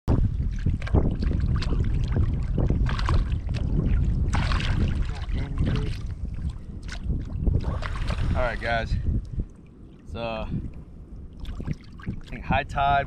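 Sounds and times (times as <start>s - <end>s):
wind buffeting microphone: 0.1s - 13.0s
fish splashing at water surface: 0.4s - 8.6s.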